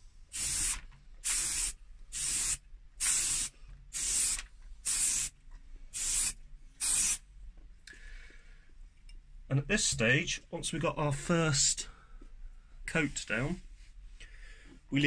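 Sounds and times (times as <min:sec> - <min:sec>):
aerosol spray can bursts: 0:00.3 - 0:05.3, 0:06.0 - 0:07.2.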